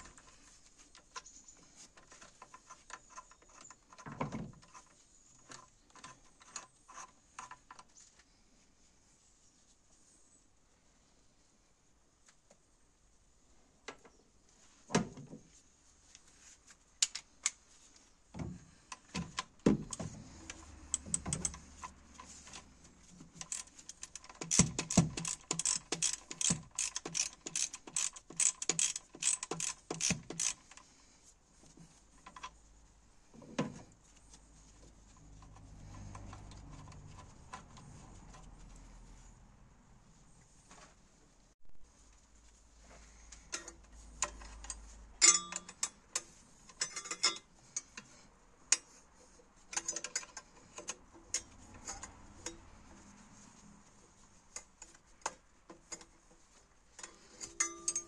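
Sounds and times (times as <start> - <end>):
socket ratchet clicking: 23.4 - 30.8.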